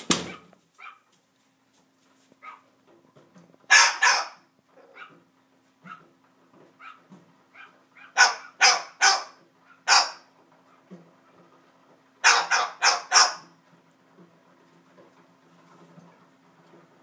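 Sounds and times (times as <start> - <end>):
cockatoo imitating dog bark: 3.7 - 5.2, 6.8 - 10.3, 12.2 - 13.5.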